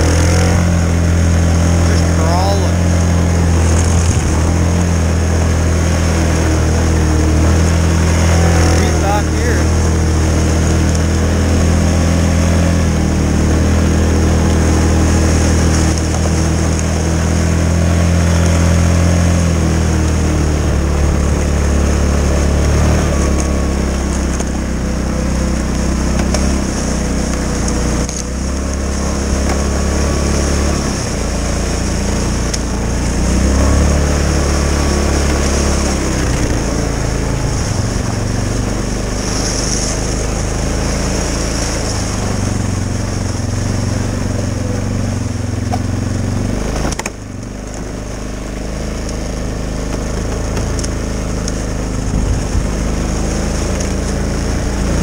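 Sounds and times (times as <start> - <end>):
atv engine running: 0.0 - 55.0.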